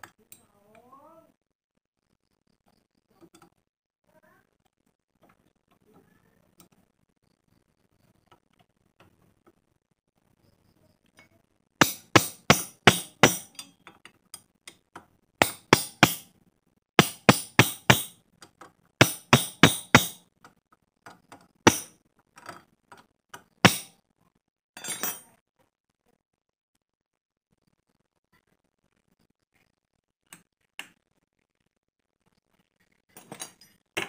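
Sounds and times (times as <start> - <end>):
metal striking steel rod: 11.8 - 13.7, 15.4 - 16.3, 17.0 - 18.2, 19.0 - 20.2, 21.7 - 21.9, 23.6 - 23.9.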